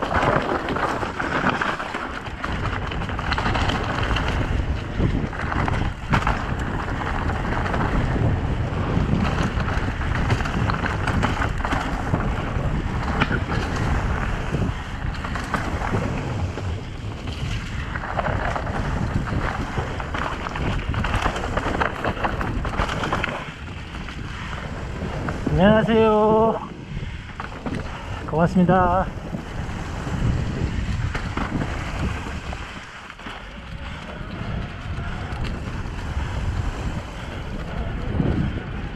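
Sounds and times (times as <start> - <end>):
bike knocking over bumps: 0.0 - 25.4
bike rattling: 0.0 - 38.9
bike tyres crunching over stones: 0.0 - 38.9
wind buffeting microphone: 0.0 - 38.9.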